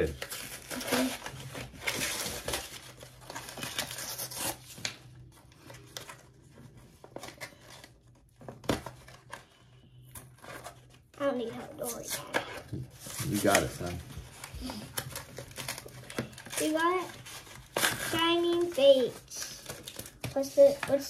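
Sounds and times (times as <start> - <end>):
wrapper crinkling and tearing: 0.0 - 9.4, 13.0 - 21.0.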